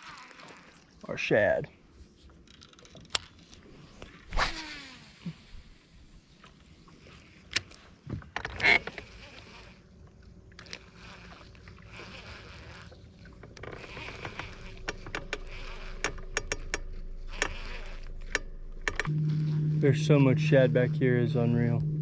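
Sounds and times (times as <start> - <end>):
fishing reel whirring: 0.0 - 0.9, 4.0 - 5.2, 8.6 - 10.0, 10.6 - 21.8
reel clicks: 2.2 - 4.2, 10.5 - 19.6
faint low hum: 9.2 - 22.0.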